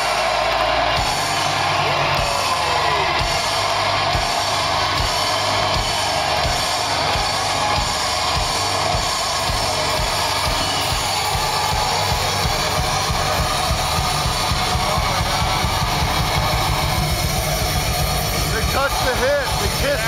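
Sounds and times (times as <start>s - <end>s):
distorted electric guitars: 0.0s - 20.0s
drum kit beat: 0.0s - 20.0s.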